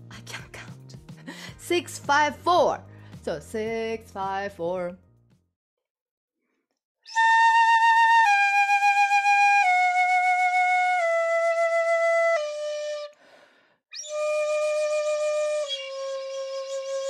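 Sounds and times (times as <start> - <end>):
bamboo flute notes: 7.1 - 13.2, 14.0 - 17.0.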